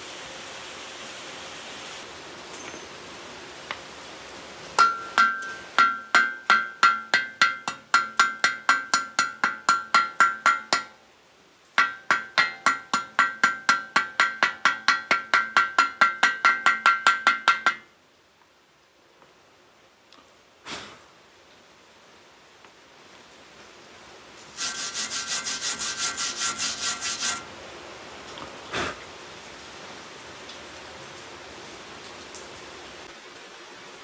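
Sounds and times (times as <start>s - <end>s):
hammer tapping on metal: 4.8s - 11.0s, 11.8s - 17.9s, 24.6s - 27.4s.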